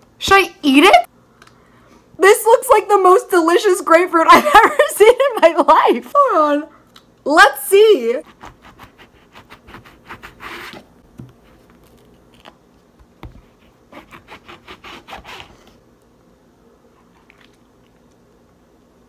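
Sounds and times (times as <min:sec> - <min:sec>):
knife sawing through grapefruit: 0:08.2 - 0:10.8, 0:13.9 - 0:15.7.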